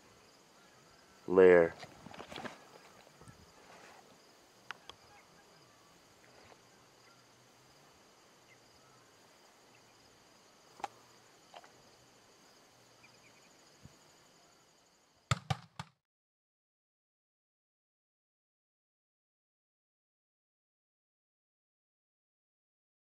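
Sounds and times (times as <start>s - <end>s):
insects trilling: 0.0s - 15.3s
faint clicks: 4.6s - 5.0s.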